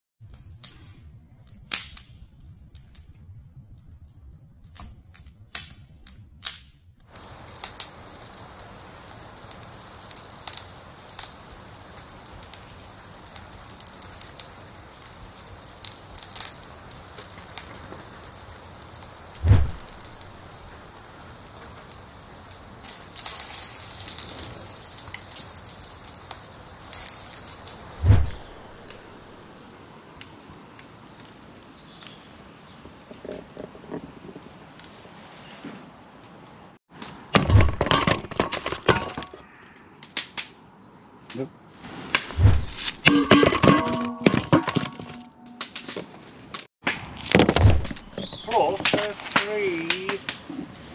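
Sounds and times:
wood fire crackling and popping: 0.2s - 35.0s, 36.2s - 41.5s, 42.1s - 50.9s
faint steady hiss: 7.0s - 32.8s
dull thump: 19.4s - 20.2s.

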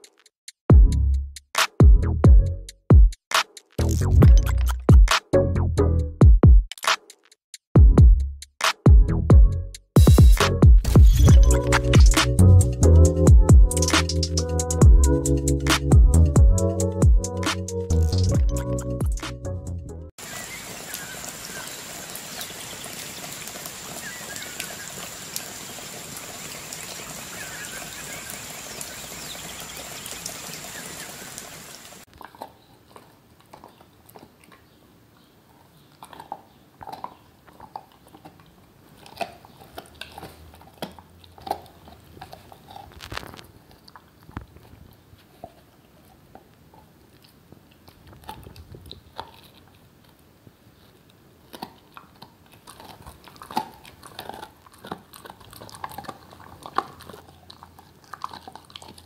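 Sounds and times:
dog gnawing on a chew: 32.0s - 59.0s.

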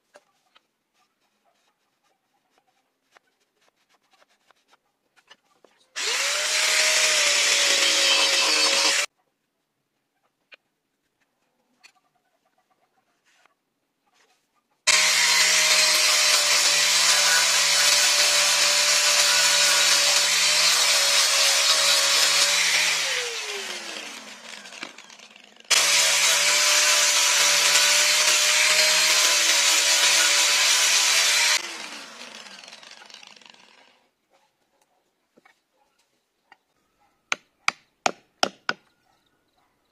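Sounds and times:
angle grinder sanding wood: 6.0s - 9.1s, 14.9s - 34.0s
grinder spinning down: 6.0s - 9.1s, 14.9s - 34.0s.

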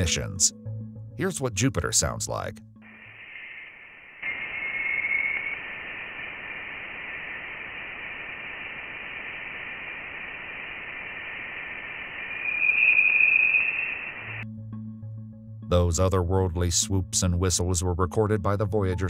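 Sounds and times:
steady hiss: 2.8s - 14.4s
whistling tone: 3.0s - 5.6s, 12.2s - 14.4s.

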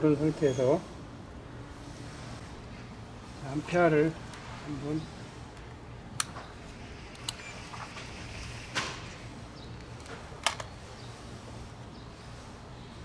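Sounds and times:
sharp clicks and light knocks: 9.8s - 10.7s.

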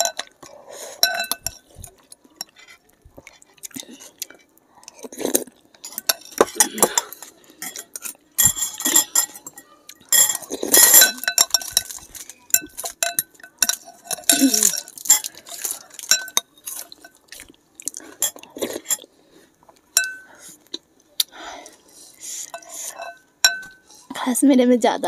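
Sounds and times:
cutlery clinking on glass bowls: 0.0s - 3.4s, 5.3s - 19.1s, 19.9s - 20.4s, 22.4s - 24.0s.

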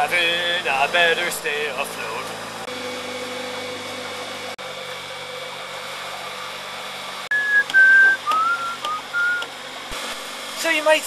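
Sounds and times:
electric outboard motor running: 0.0s - 11.0s
wind: 0.0s - 11.0s
person whistling: 7.3s - 9.5s
water noise: 7.3s - 9.5s.

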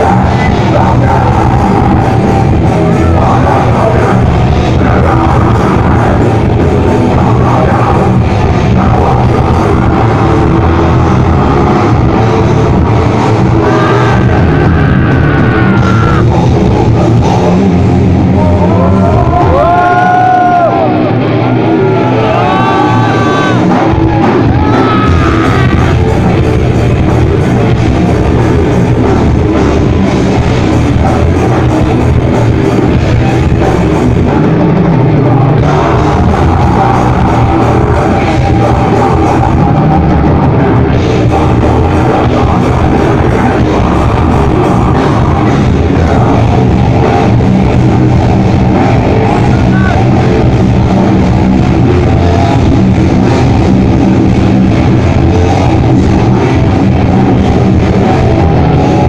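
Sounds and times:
rock band playing live: 0.0s - 59.0s
vocal yells: 13.1s - 16.5s, 18.2s - 26.4s, 55.1s - 59.0s.

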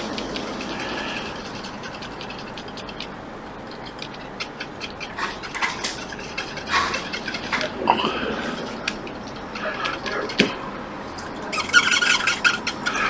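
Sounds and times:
small brush scrubbing circuit board: 0.0s - 7.8s
steady background hiss: 0.0s - 13.0s.

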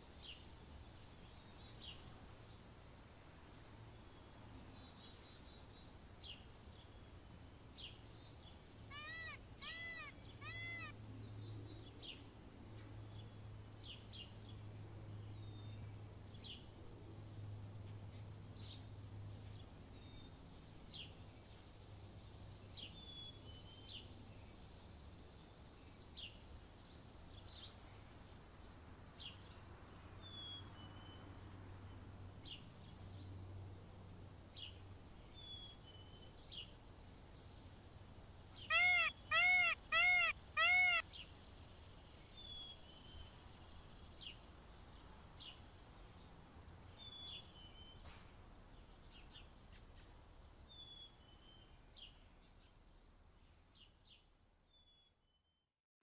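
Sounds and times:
small birds chirping: 7.8s - 10.9s, 38.5s - 41.4s
peacock calling: 8.9s - 11.0s, 38.6s - 41.0s.

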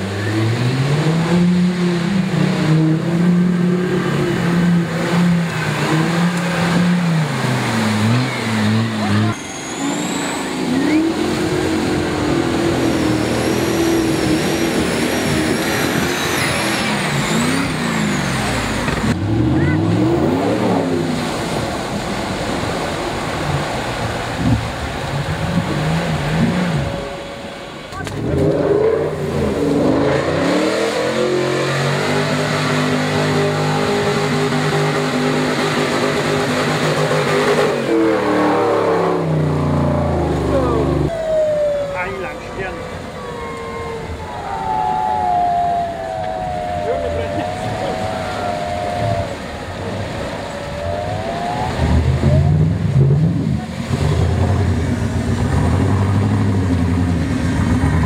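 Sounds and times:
engine at high revs: 0.0s - 58.0s
mud and water splashing: 0.0s - 58.0s.

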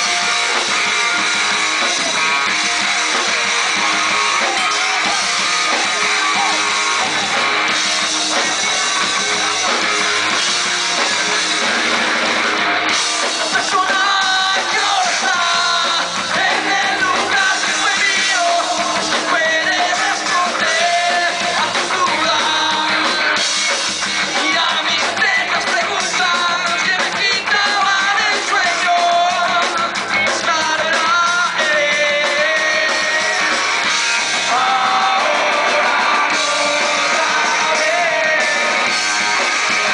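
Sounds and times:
punk rock band playing: 0.0s - 39.9s
person singing: 13.3s - 23.4s, 34.4s - 39.9s.

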